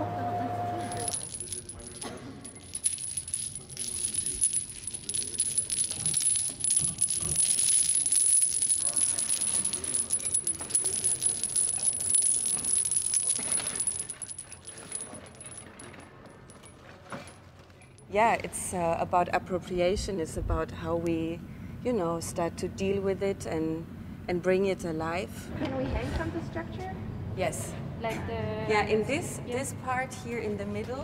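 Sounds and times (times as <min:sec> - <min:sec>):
thin steady high tone: 0:00.6 - 0:01.9
metal cylinders clinking: 0:00.8 - 0:18.1.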